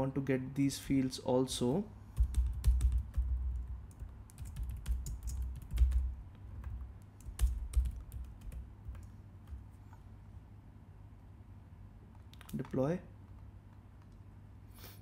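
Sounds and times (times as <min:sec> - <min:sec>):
typing on computer keyboard: 0:02.2 - 0:09.6.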